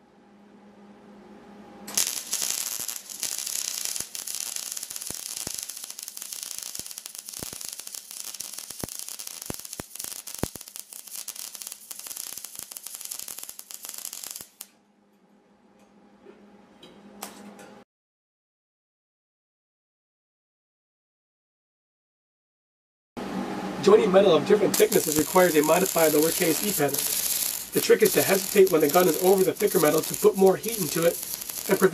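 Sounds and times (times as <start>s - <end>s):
sharp pops: 1.9s - 14.7s, 24.8s - 31.9s
welding arc crackling: 1.9s - 14.7s, 24.7s - 31.9s.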